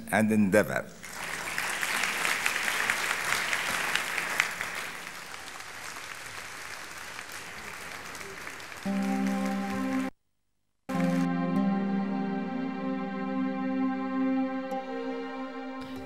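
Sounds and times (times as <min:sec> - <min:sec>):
audience applauding: 0:01.0 - 0:10.1, 0:10.9 - 0:11.3
soft sustained music: 0:08.9 - 0:10.1, 0:10.9 - 0:16.0.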